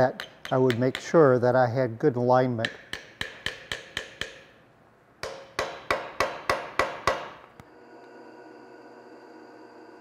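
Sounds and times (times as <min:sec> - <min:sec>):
hammer tapping on metal pin: 0:00.2 - 0:01.2, 0:02.6 - 0:04.6, 0:05.2 - 0:07.4.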